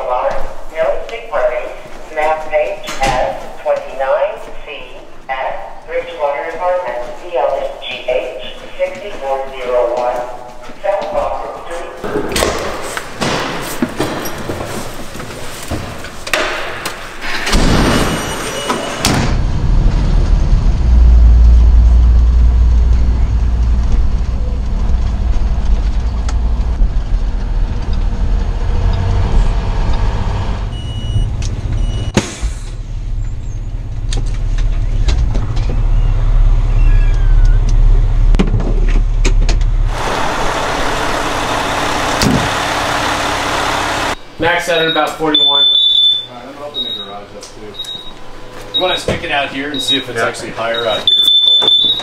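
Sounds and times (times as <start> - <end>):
knocks and clatter: 12.1 - 20.4
diesel engine deep rumble: 19.2 - 44.4.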